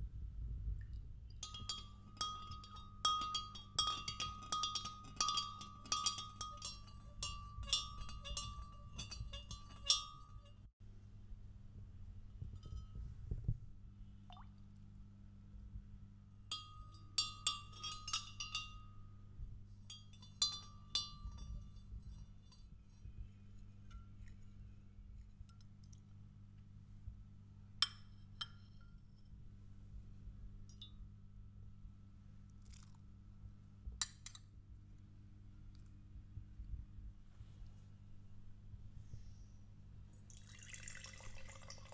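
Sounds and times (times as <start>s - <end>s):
spoon clinking against glass: 1.4s - 10.6s, 16.5s - 18.9s, 19.9s - 22.7s.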